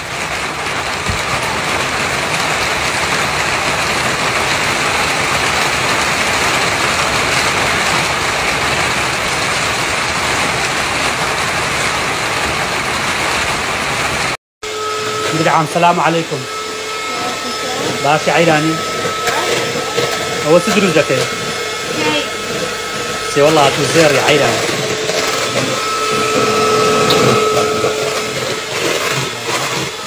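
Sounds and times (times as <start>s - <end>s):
rain on a plastic roof: 0.0s - 14.4s.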